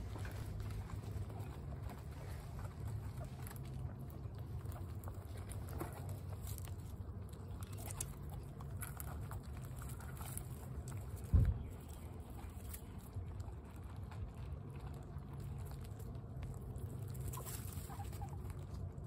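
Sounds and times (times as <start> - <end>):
guinea pigs crunching pellets: 0.0 - 19.0
steady low rumble: 0.0 - 19.0
low thump: 11.3 - 11.7.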